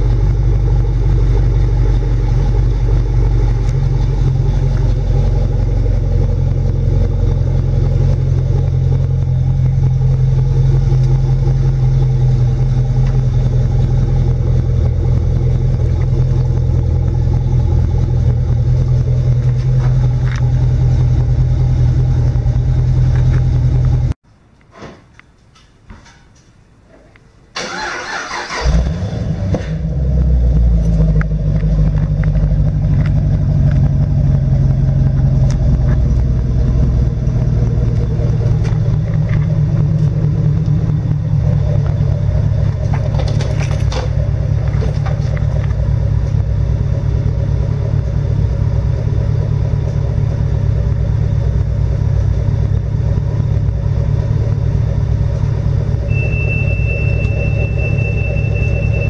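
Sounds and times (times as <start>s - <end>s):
car engine idling: 0.0s - 24.2s, 27.5s - 59.0s.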